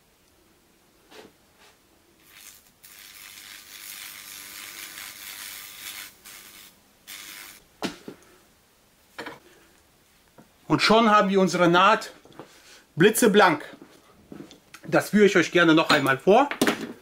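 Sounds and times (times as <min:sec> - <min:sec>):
weld-cleaning brush hissing: 0:02.2 - 0:07.6.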